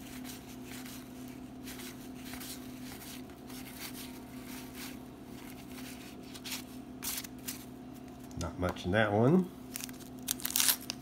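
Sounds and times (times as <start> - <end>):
cards rustling and sliding: 0.0 - 8.3
steady low hum: 0.0 - 11.0.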